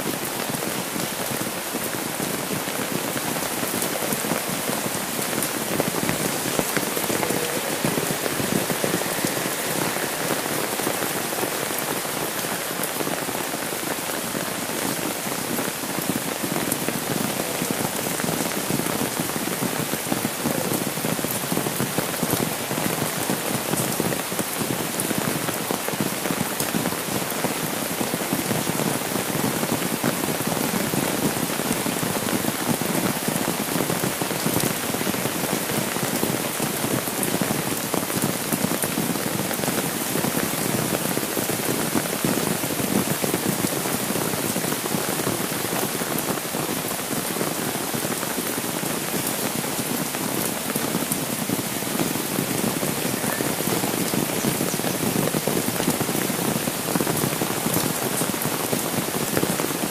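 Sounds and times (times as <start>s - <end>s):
rain on umbrella and road: 0.0s - 59.9s.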